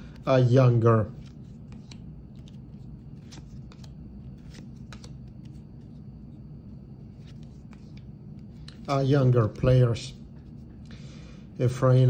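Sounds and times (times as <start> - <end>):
trading cards flicking: 1.2 - 5.6.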